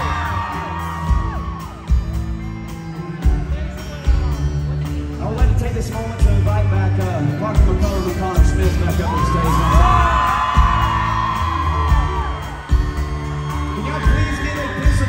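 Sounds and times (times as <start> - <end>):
crowd whooping: 0.0 - 3.5, 8.3 - 15.0
live band playing: 0.0 - 15.0
kick drum beat: 9.8 - 11.2.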